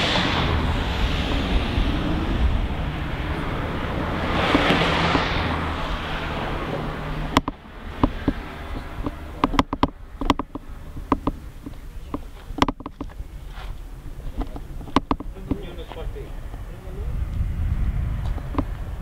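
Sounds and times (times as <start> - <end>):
steady low rumble: 0.0 - 19.0
wind buffeting microphone: 0.0 - 19.0
sharp clicks and taps: 7.3 - 8.4, 9.0 - 13.2, 14.4 - 15.7.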